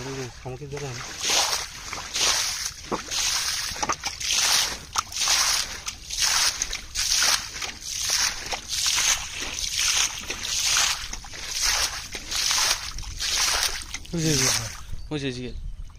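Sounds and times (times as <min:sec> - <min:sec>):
hands splashing in muddy water: 0:00.0 - 0:14.9.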